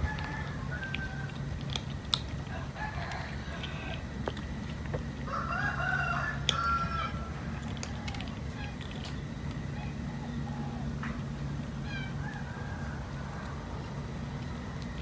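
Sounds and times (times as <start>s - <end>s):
rooster crowing: 0.0s - 1.4s, 2.5s - 4.1s, 5.2s - 8.2s, 11.9s - 13.8s
kitten crunching dry kibble: 0.0s - 5.4s, 7.3s - 9.8s.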